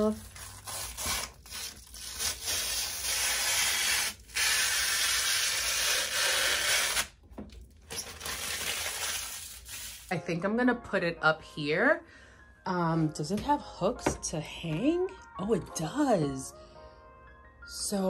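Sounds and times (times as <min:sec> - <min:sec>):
plastic film being peeled: 0:00.0 - 0:10.1.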